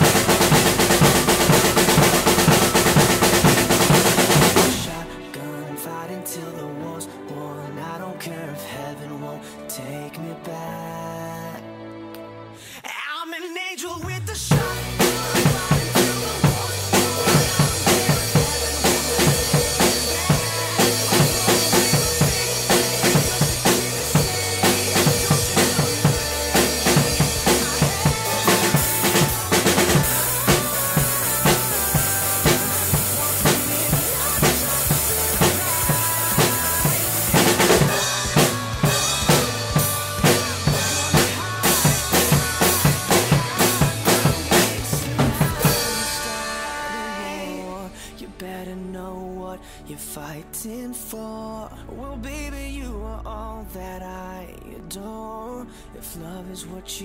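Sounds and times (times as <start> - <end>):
crash and ride cymbals: 0.0 - 4.9, 14.5 - 47.7
bass drum and snare beat: 0.0 - 5.0, 14.5 - 46.5
bass guitar notes: 0.0 - 5.2, 14.3 - 49.5
guitars: 0.0 - 5.8, 14.4 - 48.2.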